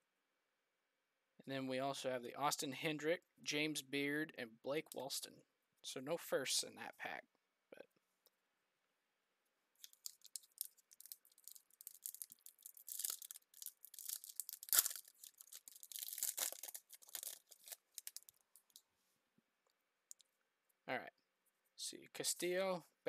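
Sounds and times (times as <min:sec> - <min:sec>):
foil wrapper crinkling: 0:09.8 - 0:18.8.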